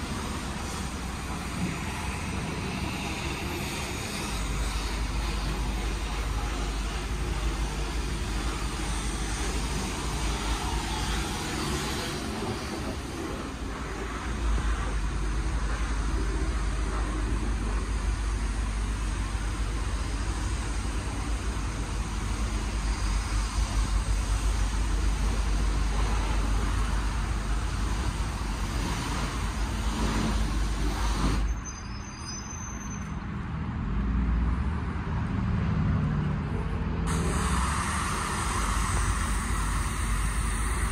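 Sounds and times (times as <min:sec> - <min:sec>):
road traffic rumble and hiss: 0:00.0 - 0:40.9.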